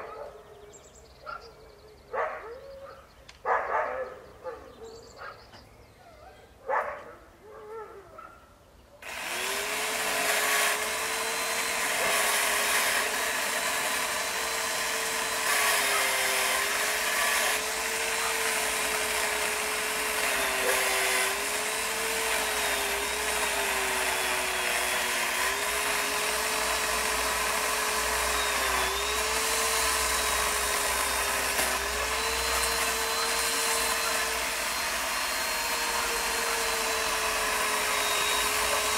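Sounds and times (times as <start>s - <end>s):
power saw cutting wood: 9.0s - 38.9s.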